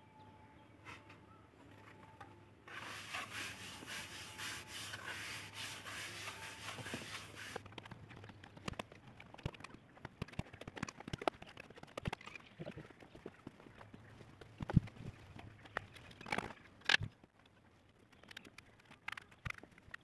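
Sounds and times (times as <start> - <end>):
trowel scraping mortar: 2.7 - 7.6.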